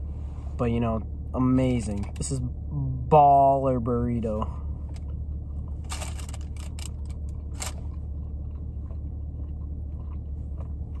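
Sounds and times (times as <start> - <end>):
low hum inside a car: 0.0 - 11.0
person chewing food: 5.0 - 11.0.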